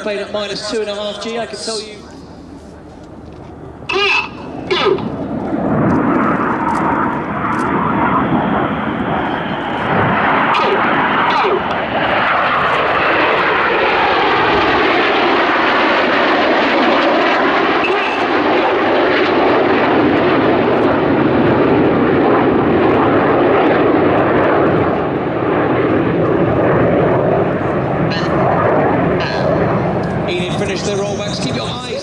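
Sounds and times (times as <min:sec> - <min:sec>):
jets flying rushing noise: 0:04.3 - 0:25.2.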